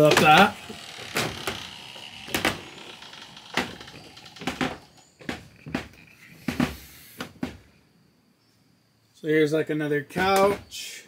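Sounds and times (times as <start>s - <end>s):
footsteps on wooden stairs: 0.0s - 7.7s.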